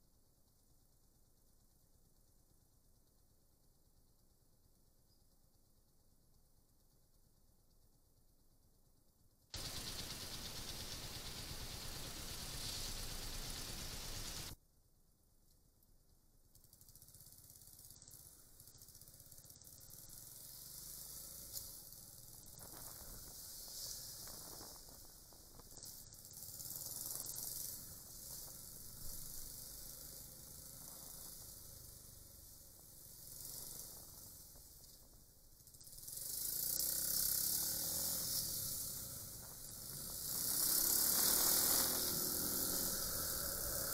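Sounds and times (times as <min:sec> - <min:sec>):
motorcycle engine hum: 0:09.6 - 0:14.6, 0:16.5 - 0:43.9
wind and road hiss: 0:09.6 - 0:14.6, 0:16.7 - 0:43.9.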